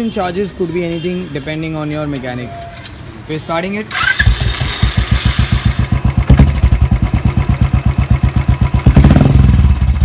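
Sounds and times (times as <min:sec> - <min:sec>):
motorcycle engine idling: 0:04.0 - 0:10.0.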